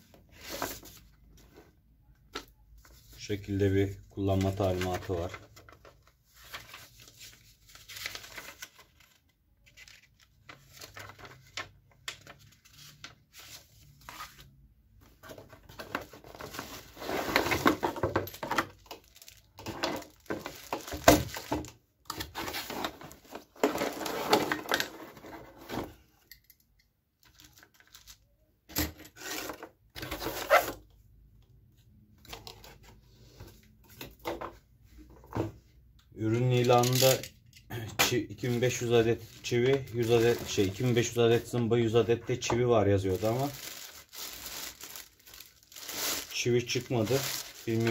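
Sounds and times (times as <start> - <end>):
plastic and cardboard crinkling: 2.4 - 25.9, 27.2 - 28.2, 38.1 - 47.9.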